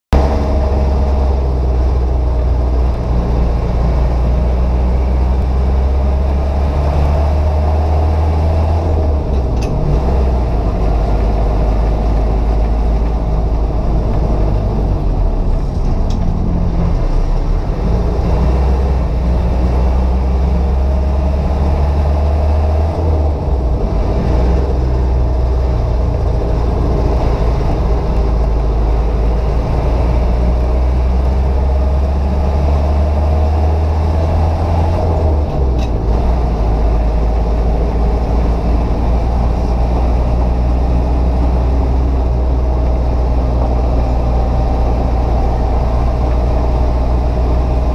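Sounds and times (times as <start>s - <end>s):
car engine droning: 0.1s - 47.9s
road noise: 0.1s - 47.9s.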